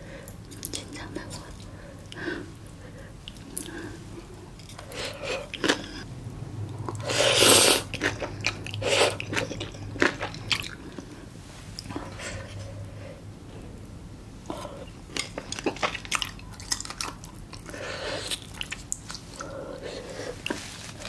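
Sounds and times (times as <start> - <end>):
loud slurp: 7.0 - 7.9
wet mouth clicks and chewing: 14.5 - 19.5.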